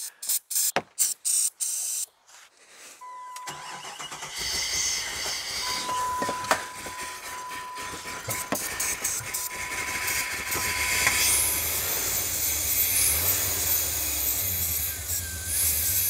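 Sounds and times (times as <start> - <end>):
car engine starting and running: 3.1 - 16.0
starting fluid spray hisses: 3.5 - 6.0, 7.0 - 16.0.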